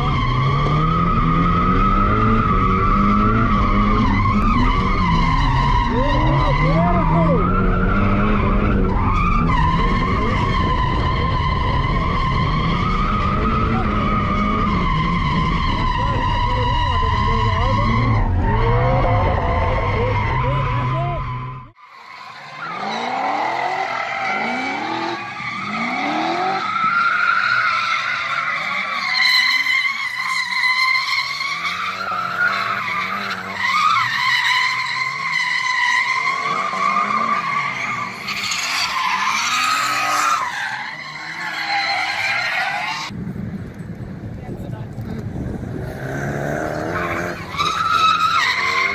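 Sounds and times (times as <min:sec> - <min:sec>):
car engine revving: 0:00.0 - 0:43.2, 0:45.0 - 0:48.9
tyres squealing: 0:13.6 - 0:43.1, 0:46.7 - 0:48.9.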